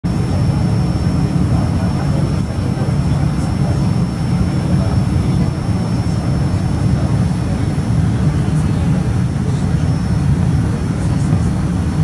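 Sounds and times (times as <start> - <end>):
low aircraft engine rumble: 0.0 - 12.0
faint high whine: 0.1 - 12.0.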